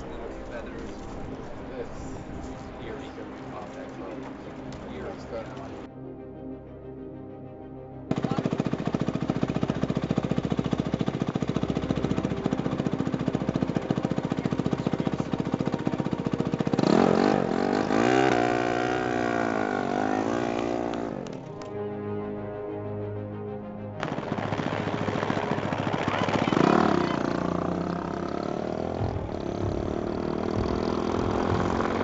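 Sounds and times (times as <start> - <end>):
motorcycle engine running: 8.1 - 21.5, 24.0 - 32.0.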